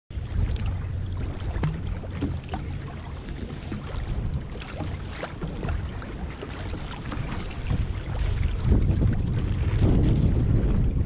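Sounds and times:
water slapping against boat hull: 0:00.1 - 0:11.0
wind buffeting microphone: 0:00.1 - 0:11.0.

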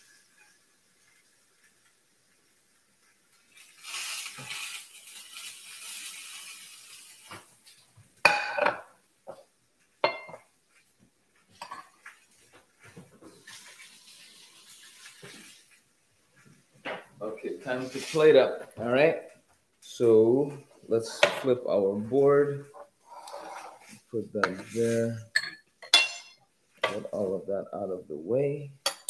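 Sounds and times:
liquid sizzling on grill pan: 0:00.0 - 0:07.8, 0:11.6 - 0:15.8
metallic clinks of kitchenware: 0:25.4 - 0:26.4.

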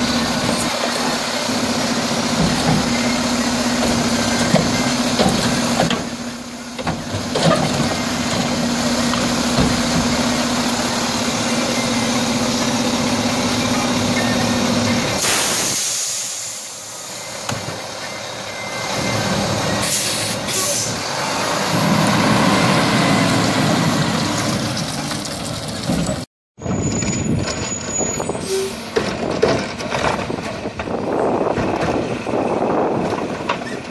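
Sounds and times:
garbage truck idling: 0:00.0 - 0:15.3
short air hisses: 0:15.2 - 0:16.8
loud air brake hiss: 0:15.2 - 0:17.2, 0:19.8 - 0:21.0.

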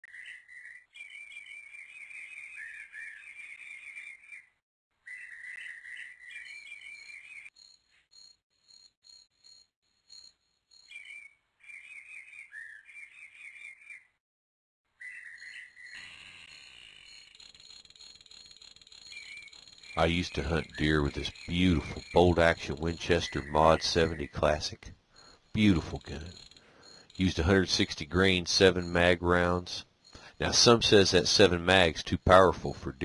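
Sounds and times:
birds chirping: 0:00.0 - 0:07.6, 0:10.8 - 0:14.2, 0:14.9 - 0:17.6, 0:18.9 - 0:33.0
insect trill: 0:07.0 - 0:11.2, 0:15.2 - 0:33.0.

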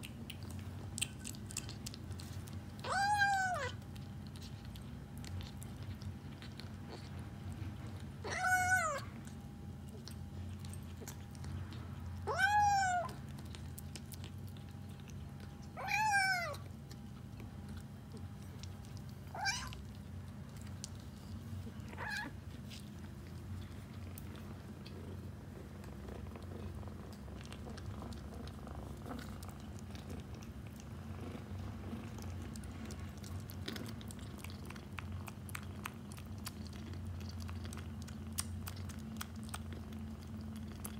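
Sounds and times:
kitten eating dry kibble: 0:00.0 - 0:40.9
kitten meowing: 0:02.8 - 0:03.8, 0:08.2 - 0:09.1, 0:12.3 - 0:13.2, 0:15.8 - 0:16.6, 0:19.3 - 0:19.8, 0:21.9 - 0:22.3.

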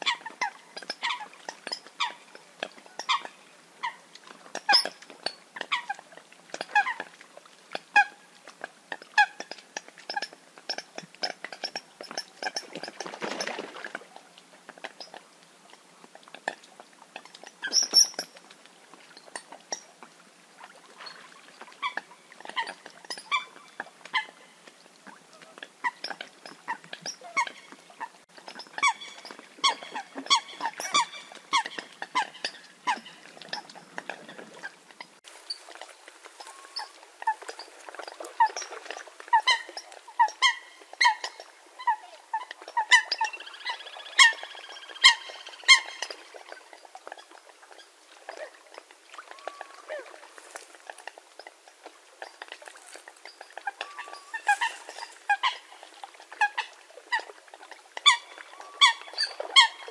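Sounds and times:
coots calling: 0:28.5 - 0:37.4.

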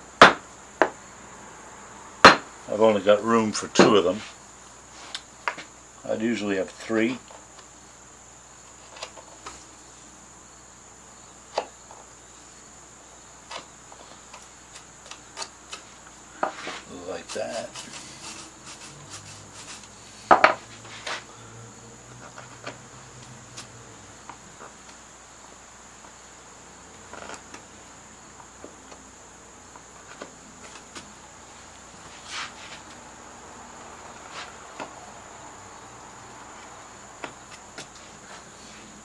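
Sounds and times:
crickets trilling: 0:00.0 - 0:39.0
hand tool scraping wood carving: 0:13.5 - 0:21.3, 0:32.1 - 0:32.9.

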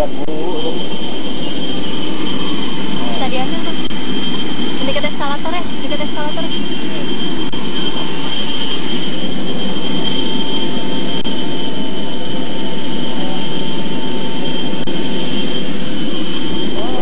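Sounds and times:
jet turbines running: 0:00.0 - 0:17.0.

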